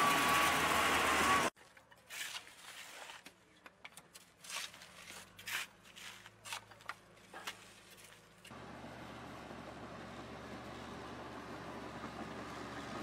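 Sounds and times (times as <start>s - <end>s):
shovels scraping on asphalt: 2.0s - 3.5s, 4.1s - 8.4s.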